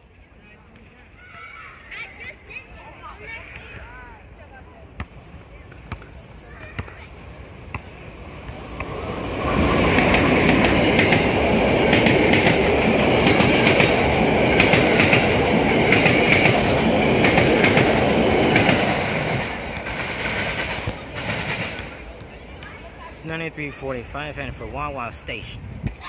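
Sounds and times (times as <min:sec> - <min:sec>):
electric train passing: 0:07.4 - 0:22.2.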